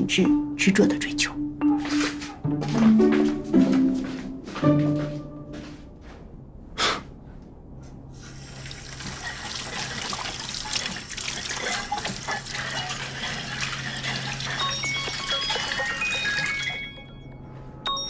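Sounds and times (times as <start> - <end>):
faucet water running into sink: 8.3 - 16.5.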